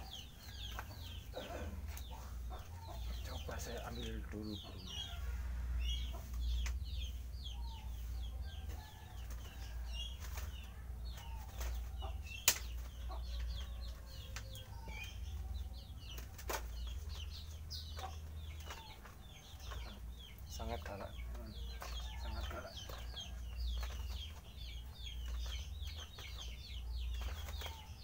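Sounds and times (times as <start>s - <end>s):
small birds chirping: 0.0s - 28.0s
wire birdcage clicks: 12.4s - 12.8s.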